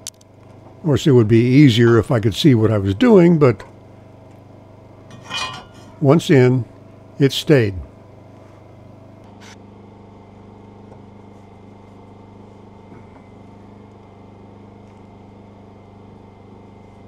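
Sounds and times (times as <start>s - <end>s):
machinery humming: 0.0s - 9.6s.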